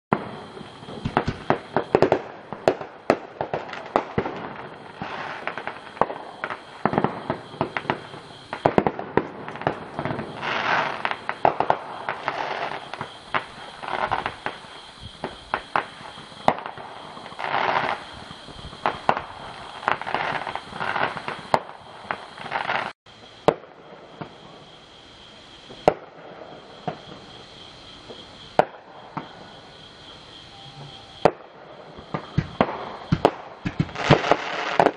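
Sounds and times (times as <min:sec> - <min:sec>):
fireworks popping and banging: 0:00.1 - 0:24.5, 0:28.0 - 0:29.4, 0:31.2 - 0:34.9
steady high-pitched tone: 0:29.3 - 0:32.0.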